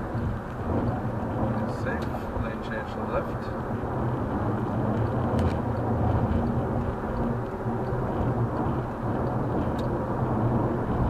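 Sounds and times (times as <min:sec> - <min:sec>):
car road and engine noise: 0:00.0 - 0:11.0.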